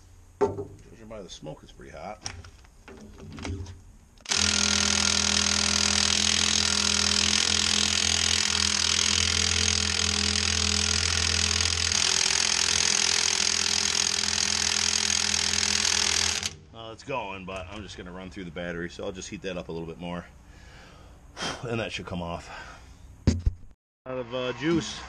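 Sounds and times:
impact wrench hammering: 4.2s - 16.6s.

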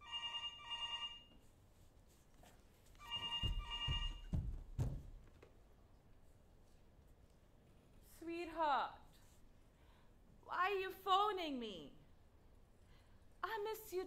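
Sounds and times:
telephone ringing: 0.0s - 1.3s, 3.0s - 4.3s
footsteps on stage floor: 2.2s - 5.6s.

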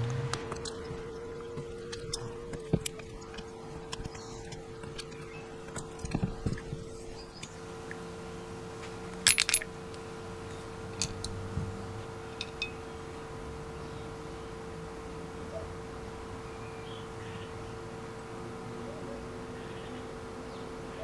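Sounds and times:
faint steady hum: 0.0s - 21.0s
ringing metallic clinks: 9.3s - 9.7s.

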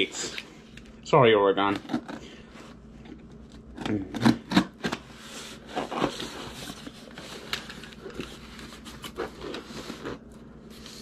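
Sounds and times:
cardboard scraping and rustling: 4.9s - 11.0s.

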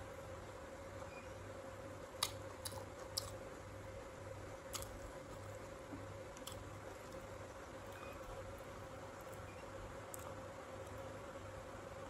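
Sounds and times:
faint hum: 0.0s - 12.0s
person chewing crisp fruit: 2.1s - 3.7s, 4.6s - 11.1s.

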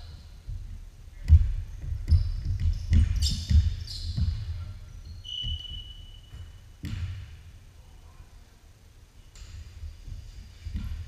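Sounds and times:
sneakers squeaking: 1.1s - 7.6s, 9.2s - 11.0s
basketball bouncing on hardwood: 1.2s - 4.6s, 6.3s - 7.4s.

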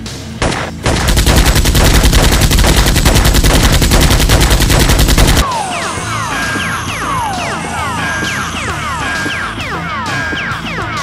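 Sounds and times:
rapid automatic gunfire: 0.4s - 5.4s.

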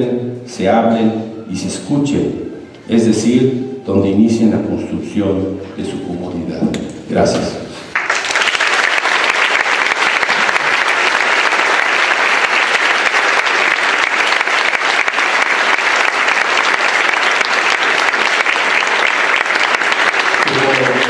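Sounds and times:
audience applauding: 7.9s - 21.0s.

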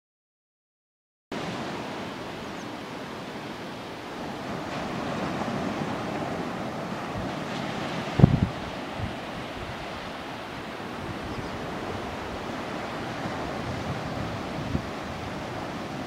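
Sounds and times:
steady rushing noise: 1.4s - 16.0s
wind buffeting microphone: 4.1s - 16.0s.

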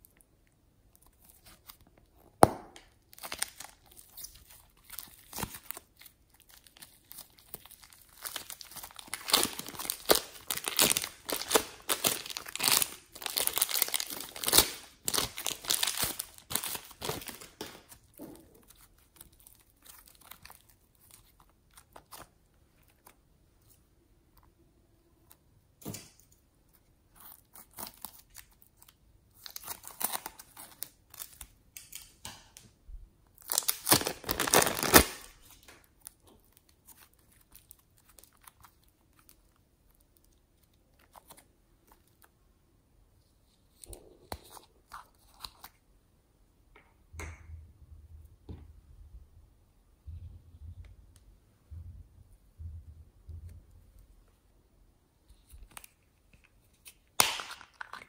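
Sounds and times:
plastic bag of slime crinkling: 0.0s - 23.8s, 26.8s - 32.1s, 33.3s - 42.3s.

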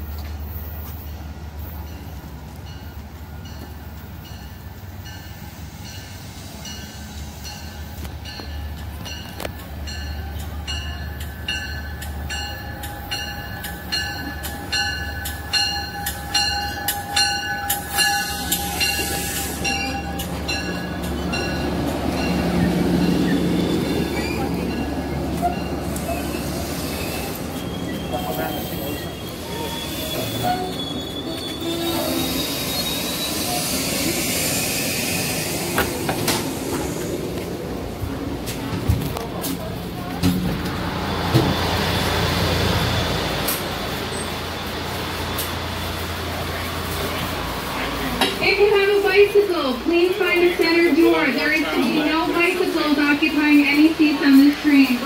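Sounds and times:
train rumble: 0.0s - 55.0s
train wheels clicking: 0.1s - 47.3s
high squealing tones: 25.4s - 35.8s.

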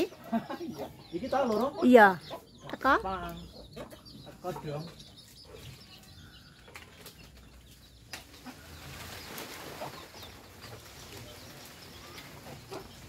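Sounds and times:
chickens clucking: 0.0s - 13.0s
tree leaves and branches rustling: 5.2s - 13.0s.

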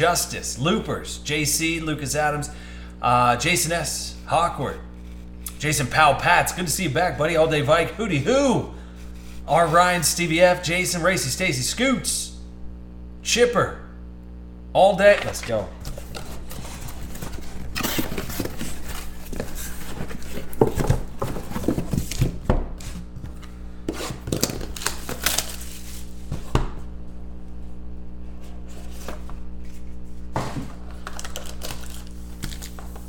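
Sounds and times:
low hum: 0.5s - 33.0s
cardboard boxes handled: 15.2s - 26.7s, 28.4s - 31.5s.

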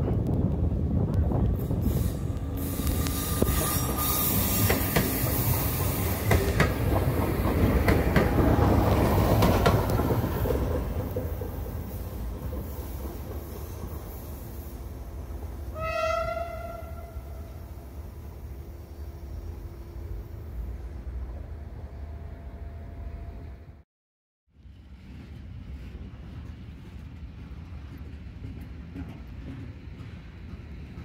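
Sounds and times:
wheels clicking over rail joints: 0.0s - 14.4s
electric train passing: 0.1s - 23.8s.

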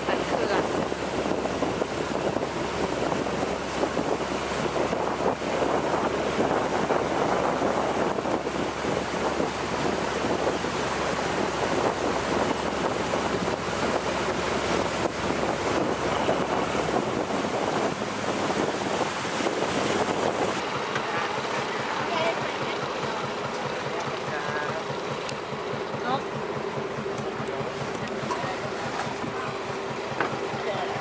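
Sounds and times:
water streaming past boat hull: 0.0s - 31.0s
wind buffeting microphone: 0.0s - 31.0s.

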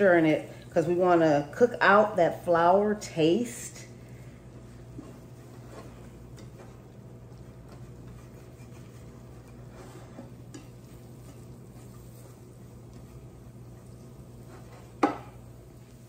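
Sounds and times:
steady low hum: 0.0s - 16.0s
whisk scraping a pan: 4.7s - 16.0s.

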